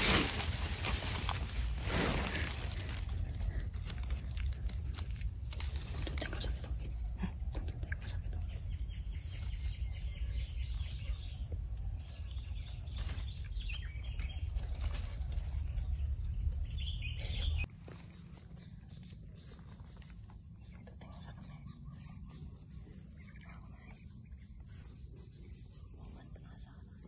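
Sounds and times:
rustles on dry leaf litter: 0:00.0 - 0:06.5, 0:12.4 - 0:16.2
low rumble on microphone: 0:00.0 - 0:27.0
faint bird chirps: 0:02.2 - 0:27.0.

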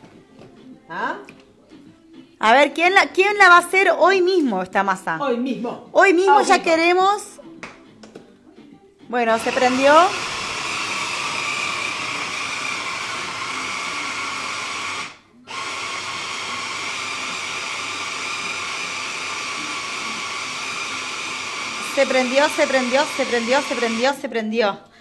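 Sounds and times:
person speaking: 0:05.2 - 0:07.1
immersion blender whining: 0:09.4 - 0:24.2.

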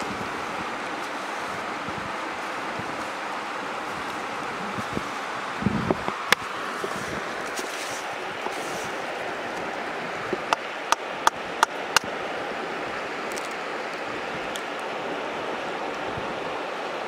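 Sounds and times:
steady outdoor hiss: 0:00.0 - 0:17.0.

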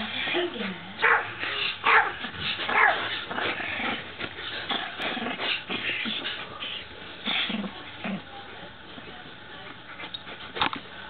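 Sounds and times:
small dog barking: 0:01.0 - 0:03.1.

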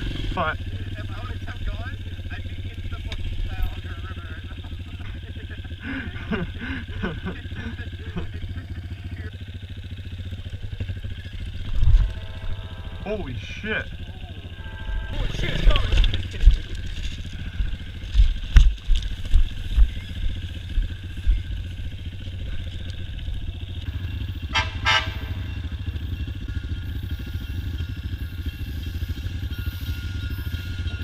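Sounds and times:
dirt bike engine at low revs: 0:00.0 - 0:31.0
horn sounding: 0:11.6 - 0:16.1, 0:23.9 - 0:31.0.

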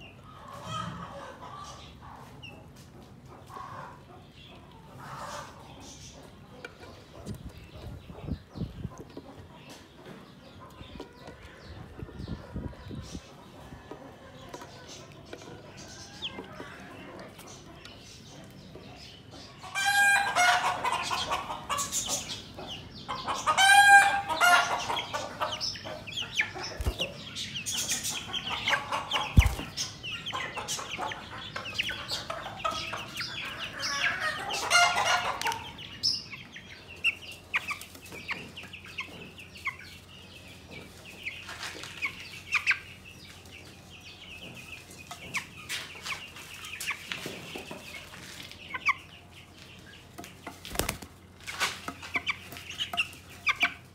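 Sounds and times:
chicks peeping and cheeping: 0:00.0 - 0:53.9
loud longer chick calls: 0:19.6 - 0:40.0.

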